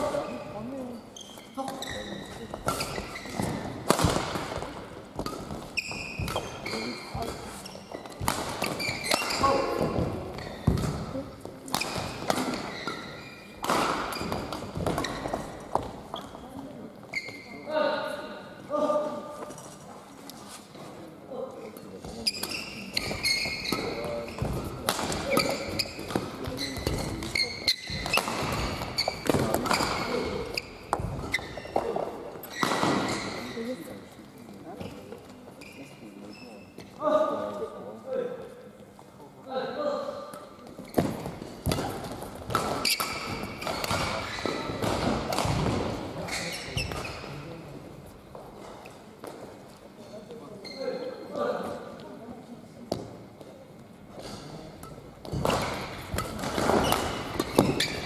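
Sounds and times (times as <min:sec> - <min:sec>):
shoes squeaking on court floor: 0:00.0 - 0:17.7, 0:21.8 - 0:37.0, 0:40.4 - 0:52.3, 0:52.9 - 0:58.0
rackets hitting shuttlecock: 0:02.6 - 0:16.3, 0:22.3 - 0:33.5, 0:40.3 - 0:47.4, 0:54.2 - 0:58.0
racket striking shuttlecock: 0:02.7 - 0:05.6.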